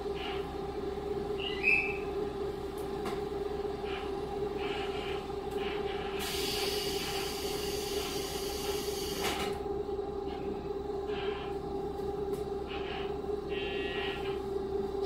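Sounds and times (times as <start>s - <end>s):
diesel railcar engine drone: 0.0s - 15.0s
rail noise: 0.0s - 15.0s
hiss: 6.2s - 9.4s.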